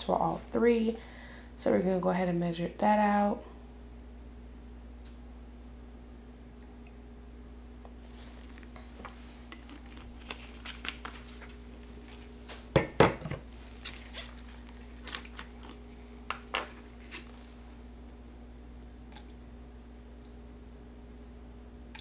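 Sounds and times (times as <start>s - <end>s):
glass bottles clinking: 12.8s - 13.4s.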